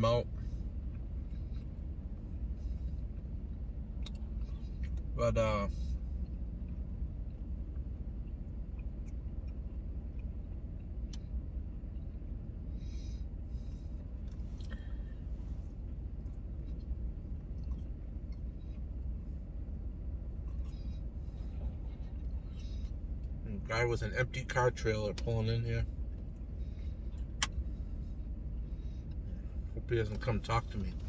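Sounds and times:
vehicle engine idling: 0.0s - 31.0s.

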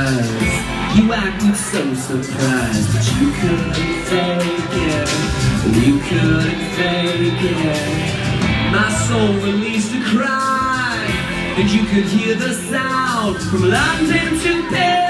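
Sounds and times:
bass guitar: 0.0s - 15.0s
electric guitar: 0.0s - 15.0s
male lead vocal: 0.0s - 15.0s.

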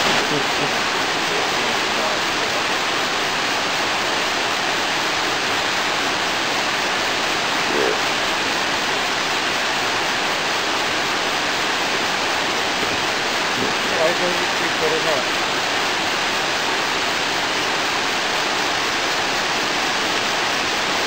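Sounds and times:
flowing river water: 0.0s - 21.0s.

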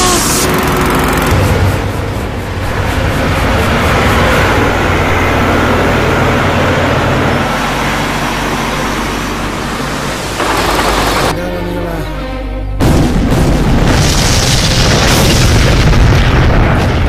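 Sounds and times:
heavy machinery engines rumbling: 0.0s - 12.1s
low hum: 0.0s - 13.8s.

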